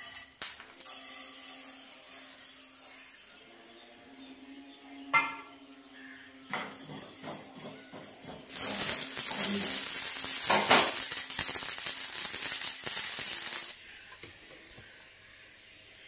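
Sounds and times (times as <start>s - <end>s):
seeds crackling in a frying pan: 0.0s - 3.4s, 8.5s - 13.8s.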